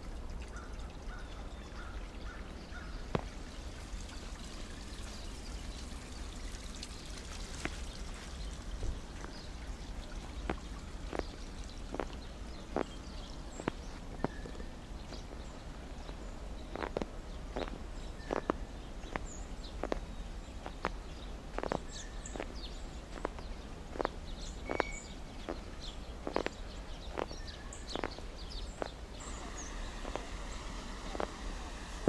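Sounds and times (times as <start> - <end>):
low outdoor rumble: 0.0 - 32.0
faint bird chirps: 9.2 - 32.0
footsteps in snow: 16.0 - 32.0.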